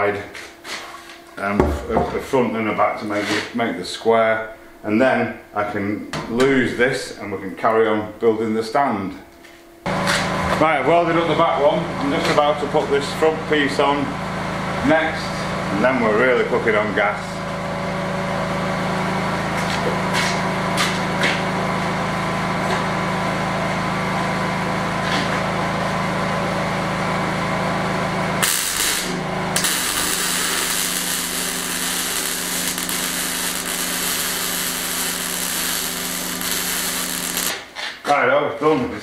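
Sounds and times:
machine hum: 1.0s - 3.0s, 9.8s - 37.6s
arc welding crackling hiss: 28.4s - 37.6s.

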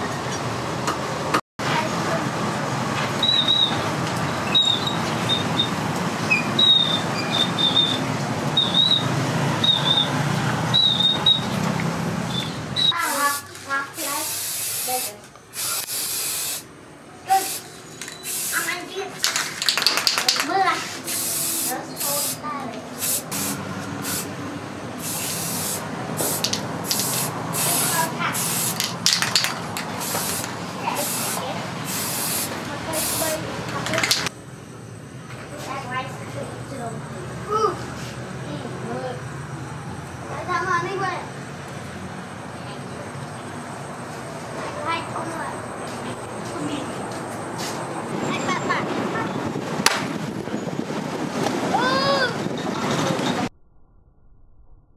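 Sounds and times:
outdoor background noise: 0.0s - 54.9s
aerosol spray can hissing: 13.0s - 16.6s, 17.3s - 18.8s, 21.0s - 24.4s, 25.0s - 33.4s.

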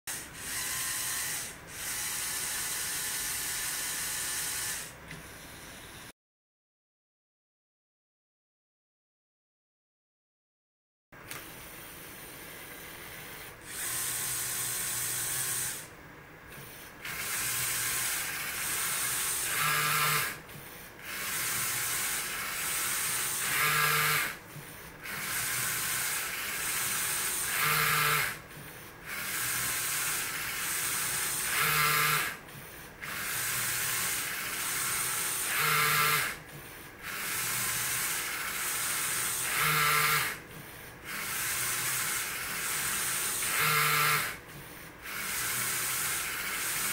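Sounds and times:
toy motors whirring: 0.1s - 6.1s, 12.9s - 15.9s, 17.0s - 20.4s, 21.0s - 24.4s, 25.0s - 28.4s, 29.0s - 32.4s, 33.0s - 40.4s, 41.1s - 44.4s, 45.0s - 46.9s.

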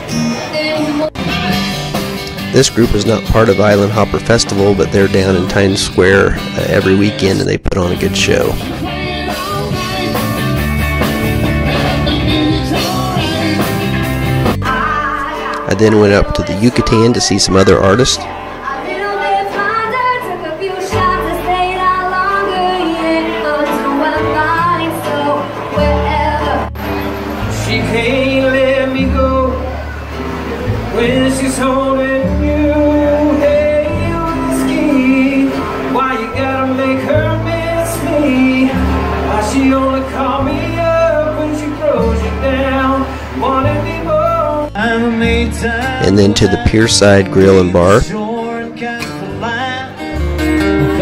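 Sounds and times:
low bass notes: 0.0s - 18.6s, 25.6s - 51.0s
acoustic guitars strumming: 0.0s - 51.0s
woman singing: 0.1s - 1.6s, 8.6s - 10.8s, 11.6s - 16.9s, 18.6s - 26.7s
man and woman singing: 8.6s - 10.4s, 11.6s - 14.0s, 14.6s - 17.6s, 18.6s - 26.7s, 27.5s - 29.8s, 30.9s - 47.2s, 48.0s - 50.1s.

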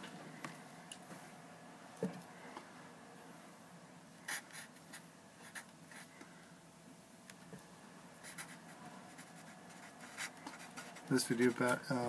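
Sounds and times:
marker writing on paper: 4.3s - 6.1s, 8.2s - 11.1s.

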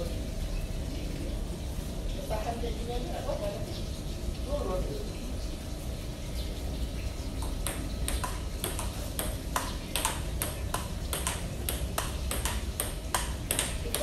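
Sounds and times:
table tennis ball clicking: 7.4s - 14.0s.

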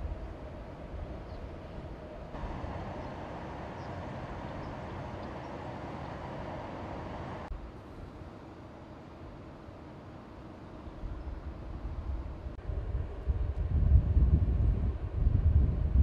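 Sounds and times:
outdoor rumble with hiss: 0.0s - 16.0s.

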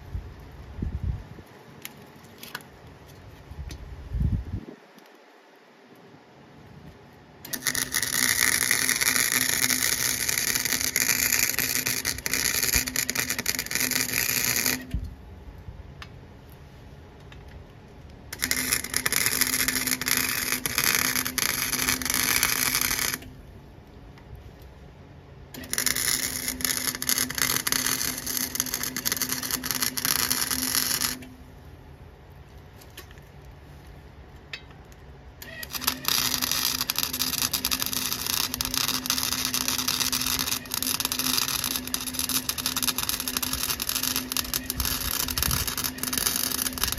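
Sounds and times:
welder arc crackling and sputtering: 7.4s - 15.2s, 18.0s - 23.4s, 25.5s - 31.4s, 34.9s - 46.9s.

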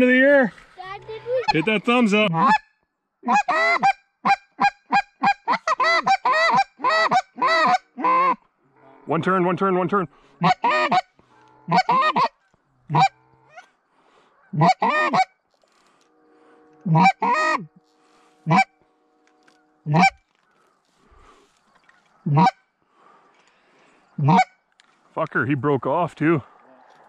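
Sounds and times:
goose honking and clucking: 1.0s - 15.4s, 16.0s - 20.6s, 21.8s - 22.7s, 24.2s - 24.6s.

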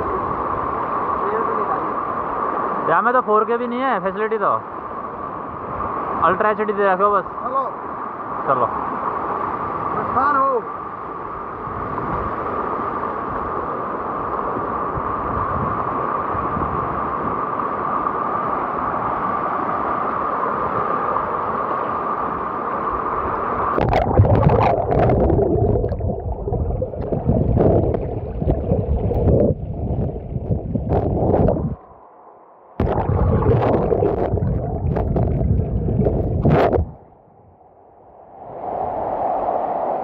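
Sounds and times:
floodwater rushing: 22.7s - 32.0s, 32.8s - 37.0s
microphone knocks and rumble: 27.0s - 31.8s, 32.8s - 37.0s.

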